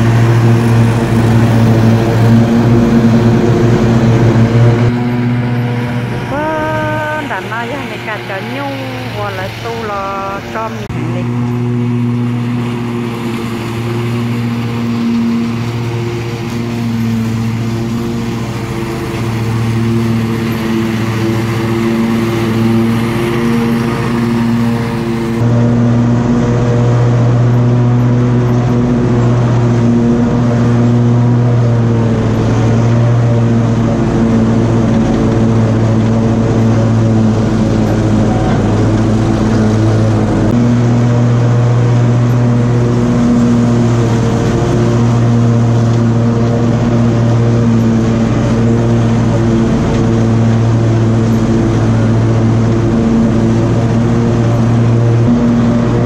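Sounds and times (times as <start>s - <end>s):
riding mower engine droning: 0.0s - 56.0s.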